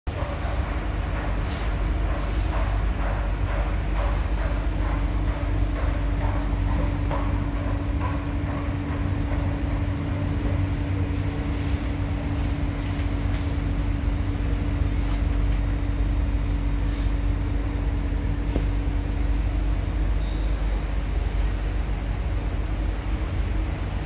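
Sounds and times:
constant hum: 0:00.1 - 0:24.0
train low rumble: 0:00.1 - 0:24.0
brief hisses: 0:16.8 - 0:17.2.

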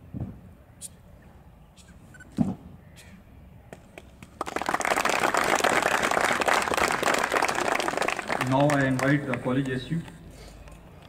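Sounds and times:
audience applause: 0:04.4 - 0:09.8.

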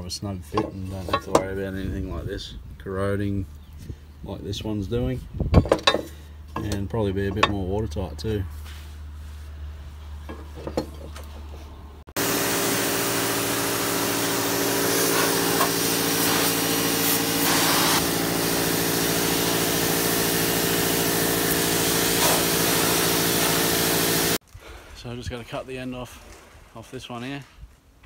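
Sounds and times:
pressure washer pump humming: 0:12.2 - 0:24.4
water jet hissing through metal: 0:12.2 - 0:24.4.

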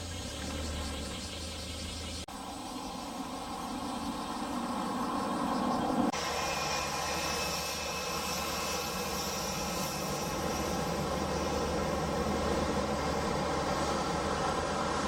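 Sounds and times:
jet engines whining: 0:02.4 - 0:15.0.

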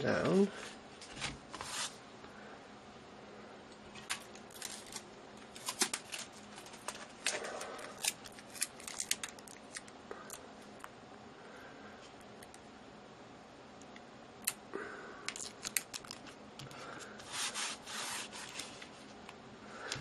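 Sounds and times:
adhesive tape crackling: 0:04.0 - 0:10.9, 0:15.3 - 0:16.4.

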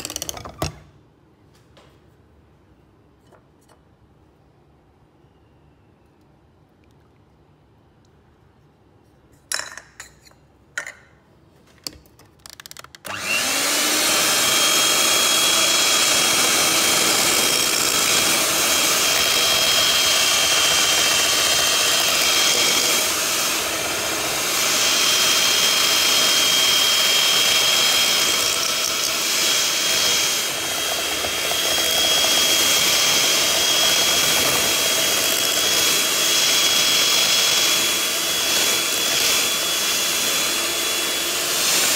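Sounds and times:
electric hand mixer whining: 0:13.1 - 0:41.9.

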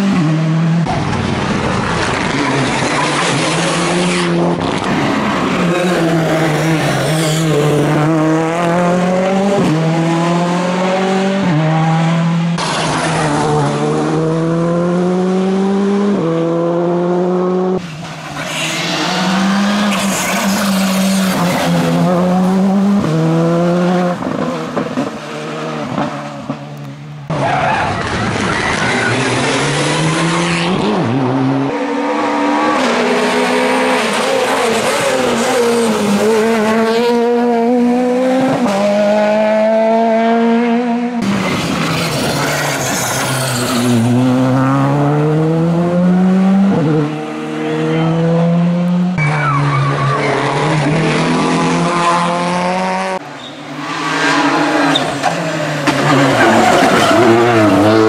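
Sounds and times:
rally car engines revving: 0:00.0 - 0:58.0.

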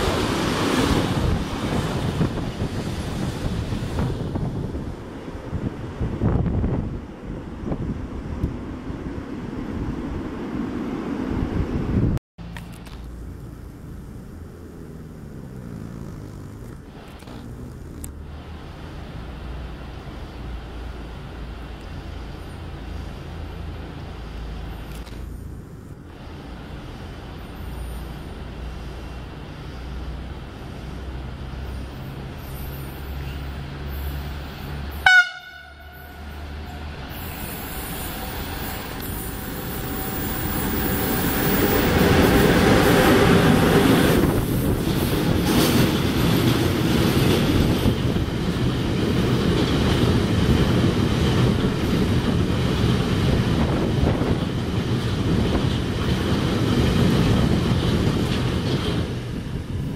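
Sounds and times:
freight train passing: 0:00.0 - 0:59.9
locomotive horn blast: 0:35.0 - 0:36.8.

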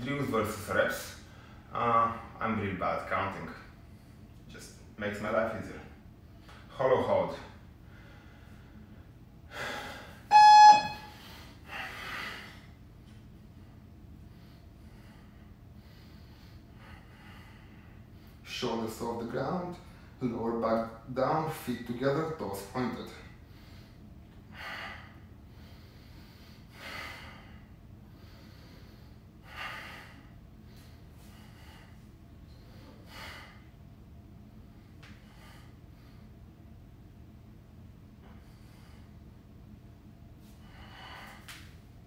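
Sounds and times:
man breathing hard: 0:07.8 - 0:10.4, 0:11.0 - 0:12.8, 0:14.2 - 0:18.4, 0:23.4 - 0:33.8, 0:40.4 - 0:41.7.

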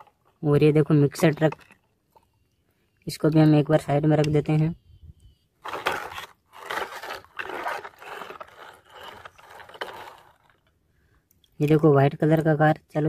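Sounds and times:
toy vehicles scraping in muddy water: 0:05.6 - 0:10.7.

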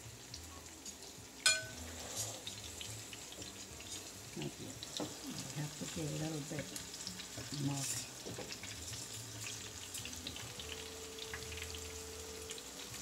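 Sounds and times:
plantain sizzling in hot oil: 0:00.0 - 0:13.0.

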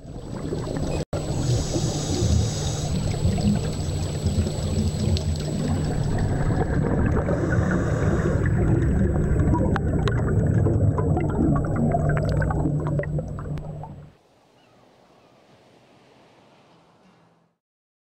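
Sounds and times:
underwater air bubbles gurgling: 0:00.0 - 0:14.2
sharp underwater clicks: 0:12.0 - 0:13.9.

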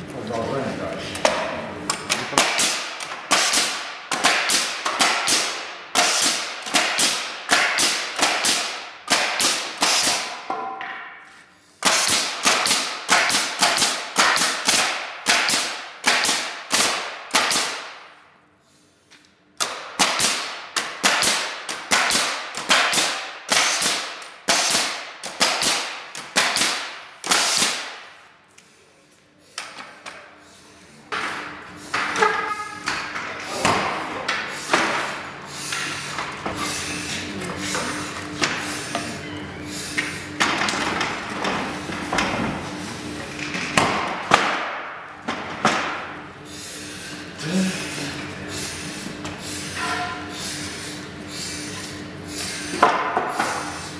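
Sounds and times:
nail gun firing: 0:02.3 - 0:10.4, 0:11.8 - 0:18.1, 0:19.6 - 0:28.1, 0:43.8 - 0:45.0.

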